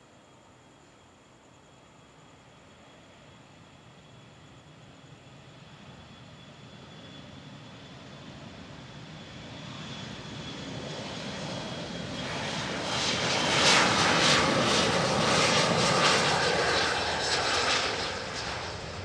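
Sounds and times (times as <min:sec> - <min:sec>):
jet engines roaring at takeoff: 0:02.8 - 0:19.0.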